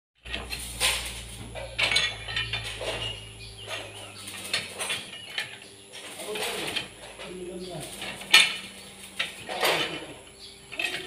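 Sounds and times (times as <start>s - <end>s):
low hum: 0.2s - 6.1s
metal tools clinking on steel: 0.2s - 11.0s.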